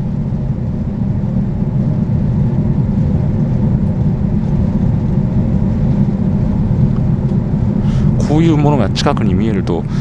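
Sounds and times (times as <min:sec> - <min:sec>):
boat engine rumble: 0:00.0 - 0:10.0
faint steady hum: 0:00.0 - 0:10.0.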